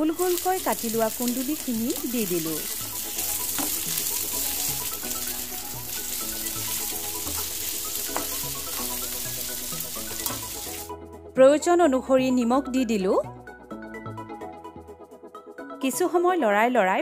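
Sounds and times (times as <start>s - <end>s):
vegetables sizzling in hot oil: 0.0s - 10.9s
soft background music: 0.0s - 17.0s
spatula knocking against pan: 8.1s - 8.5s.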